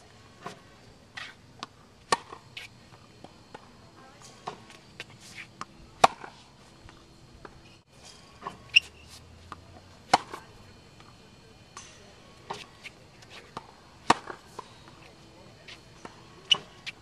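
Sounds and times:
tennis ball struck with racket: 0:01.2 - 0:03.7, 0:04.4 - 0:06.4, 0:08.4 - 0:11.2, 0:11.8 - 0:15.0.

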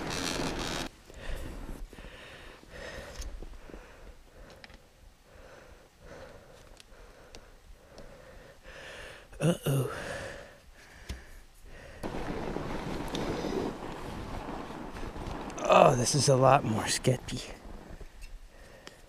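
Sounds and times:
faint breathing: 0:01.1 - 0:12.1, 0:18.3 - 0:19.0.

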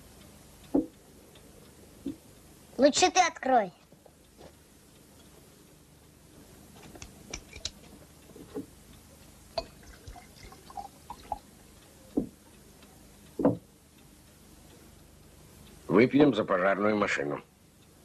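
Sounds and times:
glasses clinking: 0:09.6 - 0:11.4
liquid pouring into glasses: 0:09.6 - 0:11.4.

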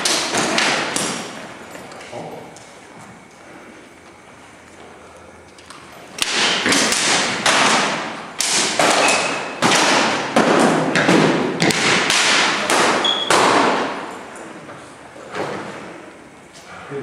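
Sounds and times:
training swords clashing: 0:00.0 - 0:01.4, 0:06.2 - 0:14.1.

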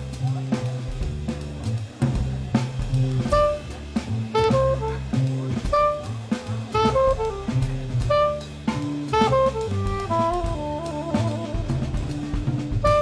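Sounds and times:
drum kit played with sticks: 0:00.0 - 0:13.0
upright bass: 0:00.0 - 0:13.0
soprano saxophone melody: 0:03.2 - 0:13.0.

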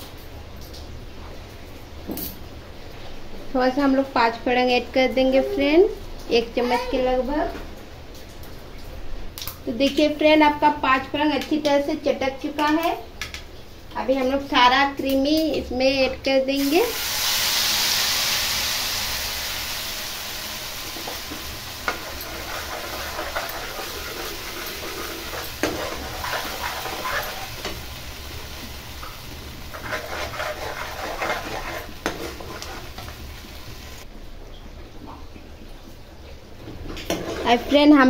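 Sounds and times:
paste sizzling in hot oil: 0:16.6 - 0:34.1
steel spoon scraping a pan: 0:21.8 - 0:27.8, 0:29.7 - 0:33.2, 0:37.1 - 0:37.9.

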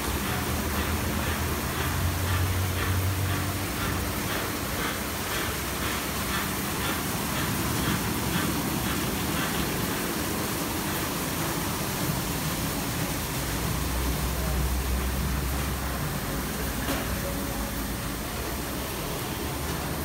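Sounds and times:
rhythmic patter: 0:00.0 - 0:13.1
running water rushing: 0:00.0 - 0:20.0.

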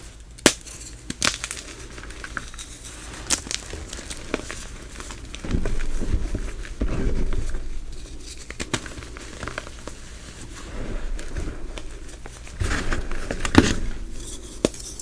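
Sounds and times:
hands crunching chalk powder: 0:00.4 - 0:06.8.

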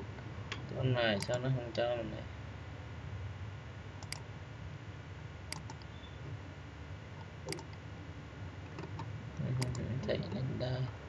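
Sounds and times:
steady low hum: 0:00.0 - 0:11.0
computer mouse clicks: 0:04.0 - 0:04.2, 0:05.5 - 0:06.0, 0:07.5 - 0:07.8, 0:08.7 - 0:09.9.

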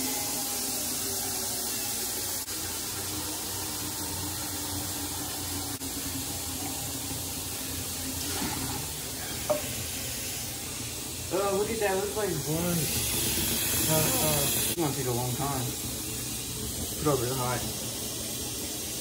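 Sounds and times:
tap water filling container: 0:02.7 - 0:10.9.

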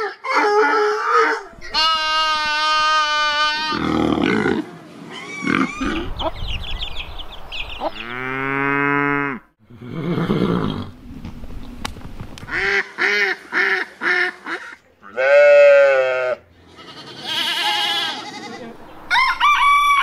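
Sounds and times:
rough animal call: 0:00.0 - 0:06.4
sheep bleating: 0:01.5 - 0:04.4, 0:15.0 - 0:18.8
rooster crowing: 0:19.0 - 0:20.0.

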